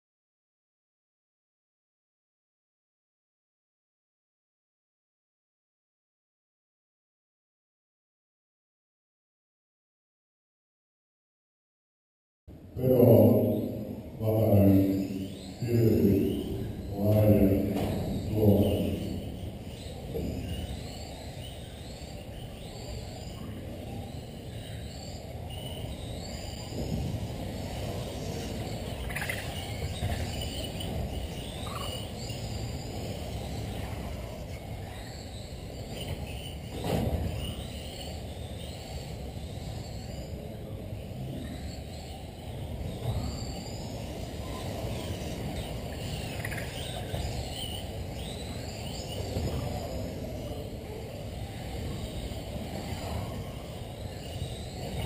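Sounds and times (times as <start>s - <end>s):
reverberant hall rumble: 12.5s - 55.0s.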